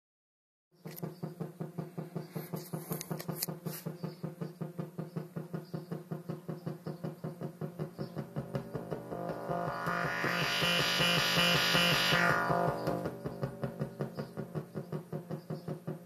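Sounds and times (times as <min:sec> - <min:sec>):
synthesizer low pulses: 0:08.0 - 0:14.7.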